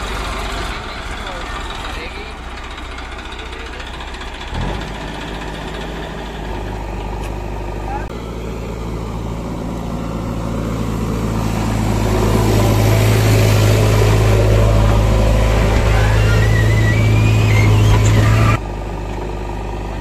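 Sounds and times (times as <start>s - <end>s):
diesel engine running: 0.0s - 20.0s
thin wavering squeal: 14.1s - 18.6s.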